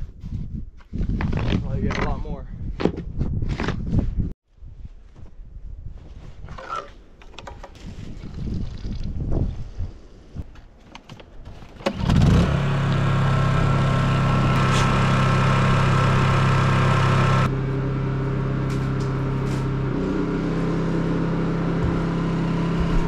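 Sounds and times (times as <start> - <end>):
generator engine running: 12.0 - 23.0.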